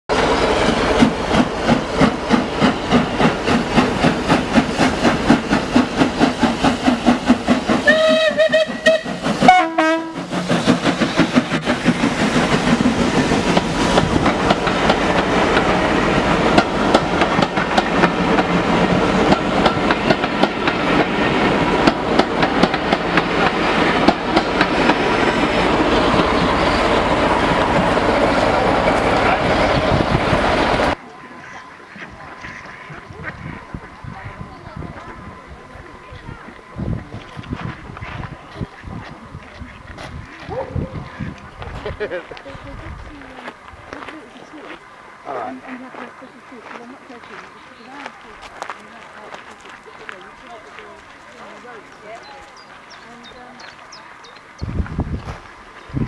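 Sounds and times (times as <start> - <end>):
wheels clacking over rail joints: 0.1 - 31.0
steam locomotive chuffing: 0.1 - 54.5
carriages rumbling past: 0.1 - 54.6
steam train whistle: 7.7 - 10.4.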